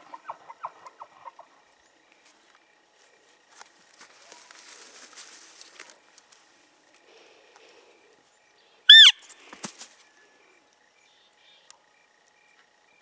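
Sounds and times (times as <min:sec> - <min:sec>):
leaves and brush rustling: 0:02.1 - 0:07.4, 0:09.1 - 0:10.2.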